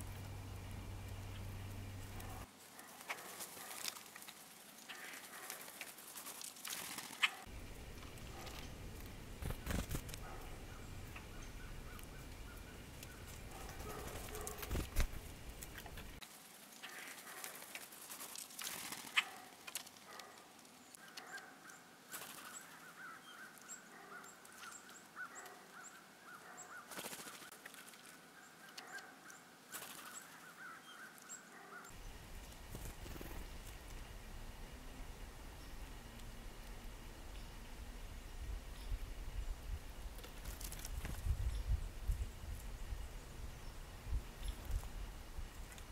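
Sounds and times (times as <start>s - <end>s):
birds calling and chirping: 0.0s - 16.2s, 16.8s - 45.9s.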